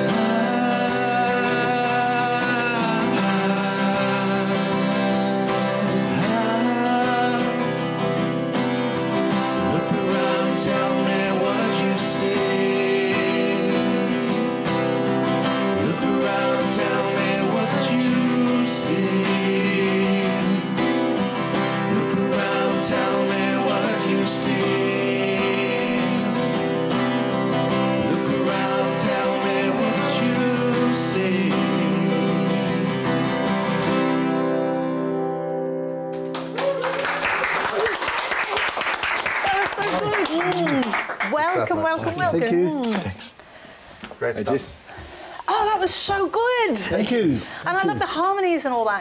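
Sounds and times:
man singing: 0.0s - 8.2s, 9.3s - 33.6s
acoustic guitars strummed: 0.0s - 36.6s.

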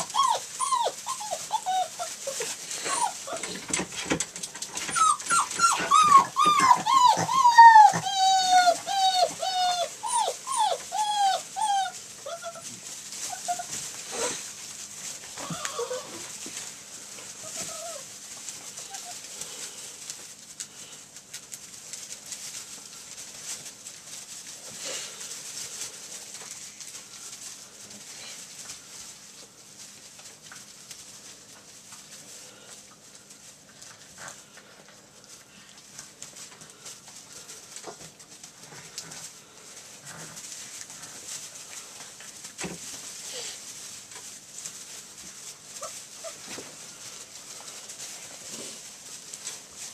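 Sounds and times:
puppy squeaks and yips: 0.0s - 3.5s, 4.8s - 12.7s, 13.3s - 14.3s
wood shavings rustling: 0.0s - 49.9s.

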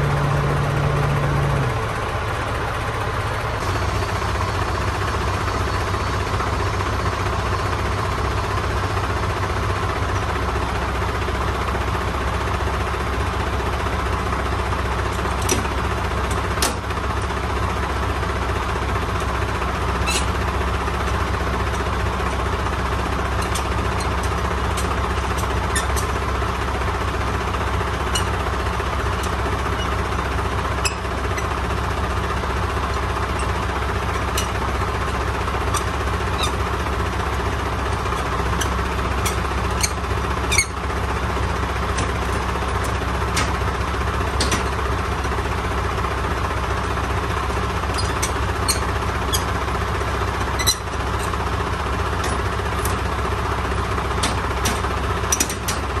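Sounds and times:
diesel engine running: 0.0s - 56.0s
short squeaks and clicks: 15.1s - 17.3s, 19.2s - 26.4s, 27.0s - 45.5s, 46.8s - 56.0s.

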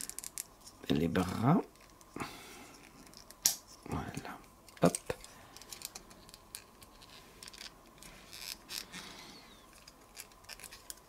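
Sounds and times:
plastic toy parts clicking and scraping: 4.7s - 9.0s, 9.7s - 11.0s.

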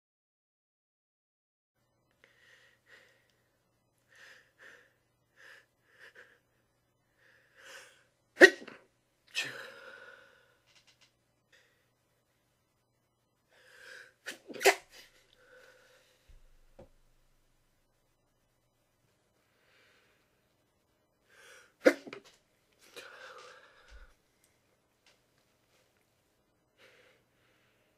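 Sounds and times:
stifled sneezes: 8.4s - 9.7s, 14.2s - 15.2s, 21.8s - 22.3s.

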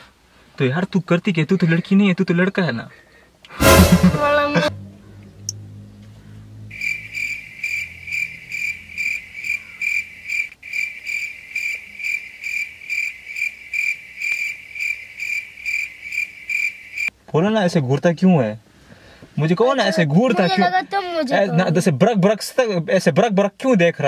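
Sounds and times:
cricket chirping: 6.7s - 17.1s.

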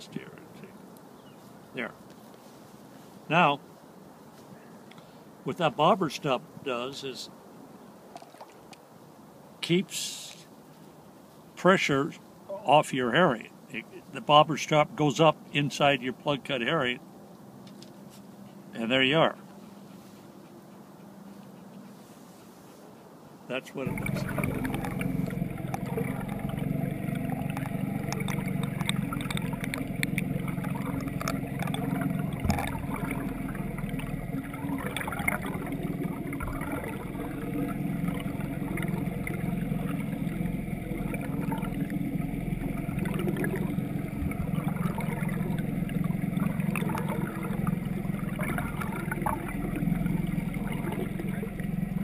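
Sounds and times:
boat motor humming: 0.0s - 1.9s, 23.6s - 52.0s
rushing water: 23.6s - 52.0s.

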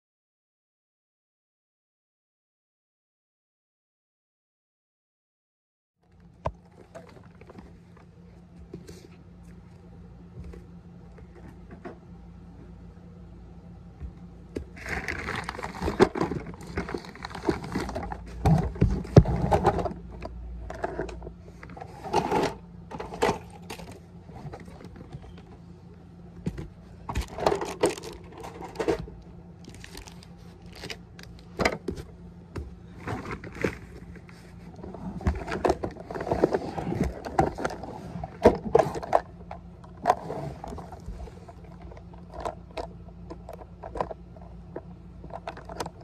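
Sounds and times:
steady low hum: 6.0s - 46.0s
plastic toy parts clattering: 14.8s - 25.4s, 27.1s - 31.8s, 35.3s - 46.0s.

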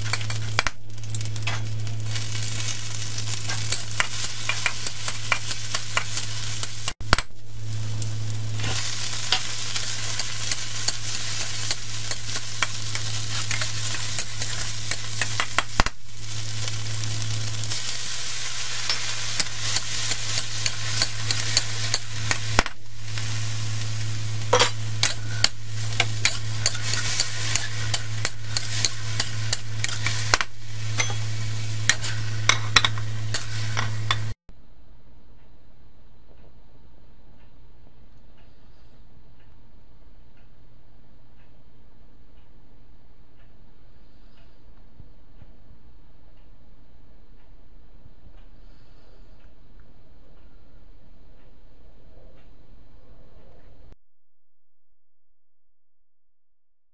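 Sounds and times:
hot oil sizzling: 0.0s - 34.4s
metal spatula scraping wok: 0.0s - 34.4s
low hum: 0.0s - 56.9s
spatula clicking on wok: 3.5s - 7.3s.

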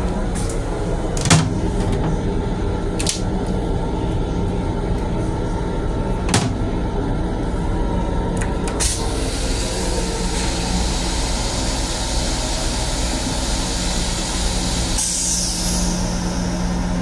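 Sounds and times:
train hum and rumble: 0.0s - 17.0s.

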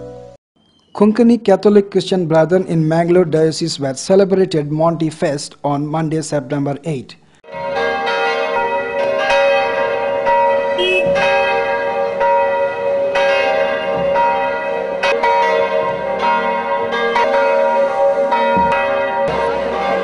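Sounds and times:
church bells ringing: 7.4s - 20.0s.

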